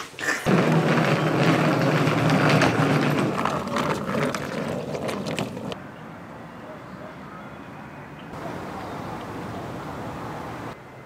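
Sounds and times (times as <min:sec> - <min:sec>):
footsteps: 0:00.0 - 0:05.8
suitcase wheels rumbling on concrete: 0:00.4 - 0:05.8
clacks: 0:00.5 - 0:05.8.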